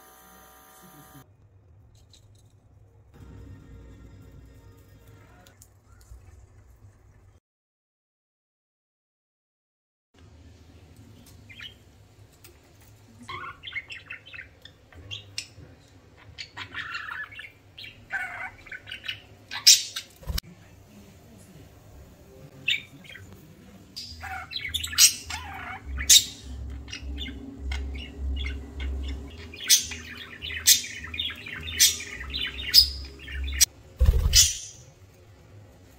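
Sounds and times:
budgerigars chirping and chattering: 13.3 - 20.4, 23.9 - 34.8.

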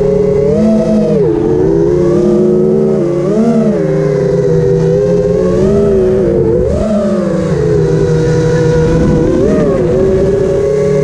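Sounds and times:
quadcopter motors whining: 0.0 - 11.0
wind rumbling on microphone: 4.2 - 11.0.

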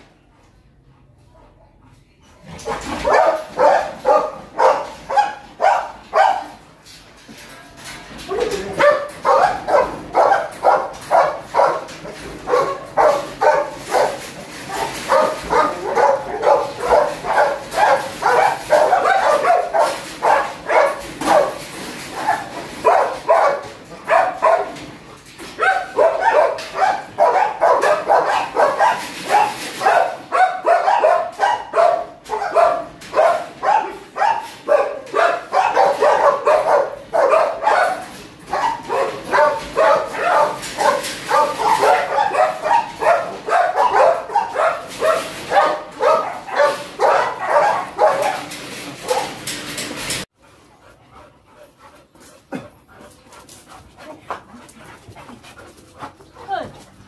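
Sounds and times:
dogs barking rapidly: 2.6 - 6.7, 8.6 - 49.5.

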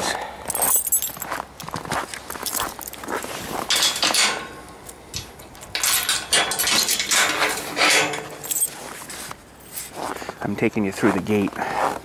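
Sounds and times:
keys jangling: 0.5 - 4.6, 5.2 - 8.9
metal gate latch rattling: 3.6 - 8.7.

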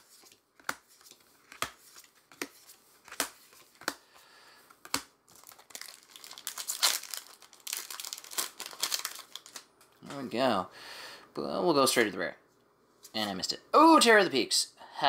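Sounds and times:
foil wrapper crinkling and tearing: 5.3 - 9.7.

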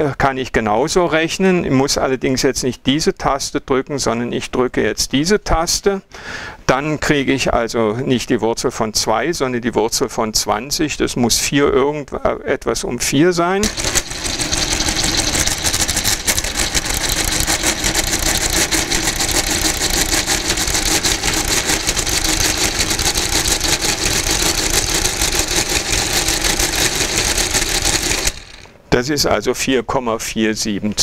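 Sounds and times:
mechanical calculator clatter: 13.6 - 28.8.

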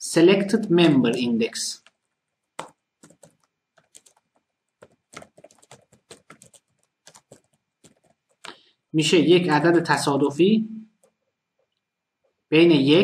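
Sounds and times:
typing on computer keyboard: 1.0 - 8.5.

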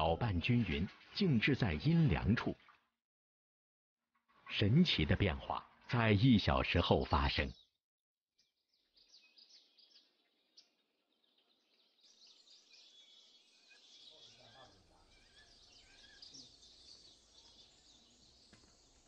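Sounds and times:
small birds chirping: 4.6 - 7.8, 8.4 - 19.0.

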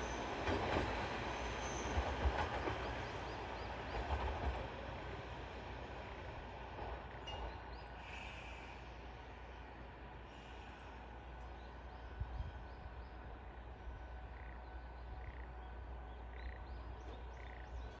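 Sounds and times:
wind rumble on microphone: 12.2 - 12.8
frogs croaking: 13.2 - 18.0.

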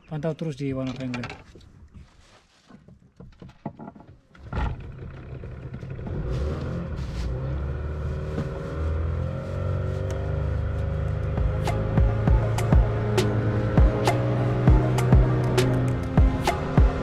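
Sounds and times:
outboard motor running: 4.4 - 6.8.

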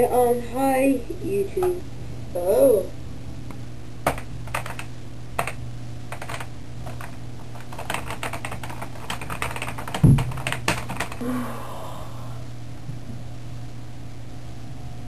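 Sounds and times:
steady low hum: 0.0 - 15.0
keyboard keys clicking: 4.0 - 11.2.

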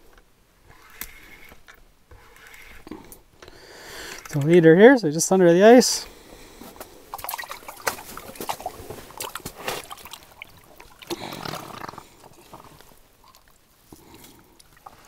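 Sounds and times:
water pouring and dripping: 7.1 - 11.4
fish splashing and thrashing in water: 7.1 - 15.0.

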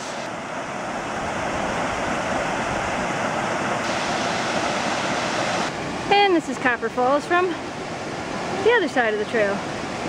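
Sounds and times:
waterfall rushing: 0.0 - 10.0.

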